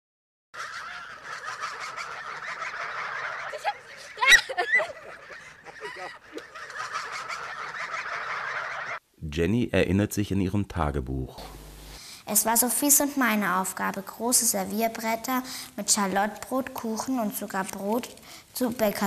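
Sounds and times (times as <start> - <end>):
geese honking: 0.6 - 9.0
loud goose call: 0.6 - 9.0.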